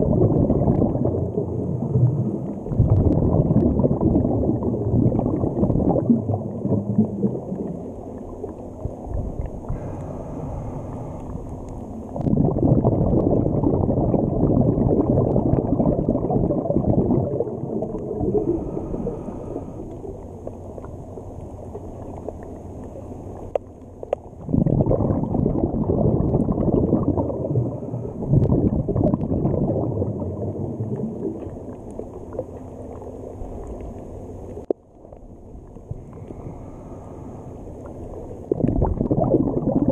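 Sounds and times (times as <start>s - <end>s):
underwater rushing and gurgling: 0.0s - 39.9s.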